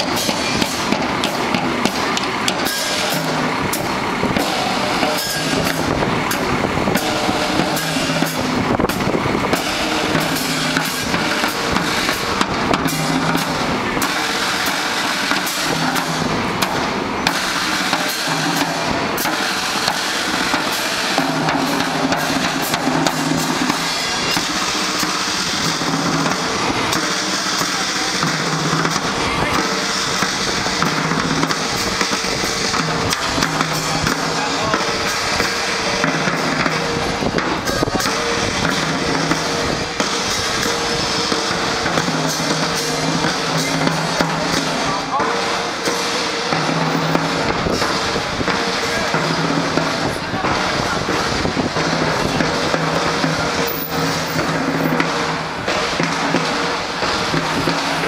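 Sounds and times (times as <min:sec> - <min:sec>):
marching band playing: 0:00.0 - 0:58.0
snare and bass drums beating: 0:00.0 - 0:58.0.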